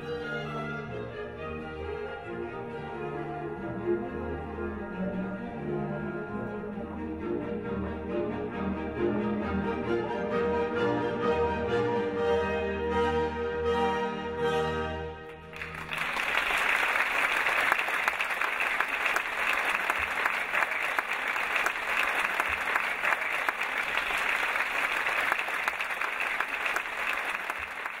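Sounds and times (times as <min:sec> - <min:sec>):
audience applauding: 0:15.4 - 0:28.0.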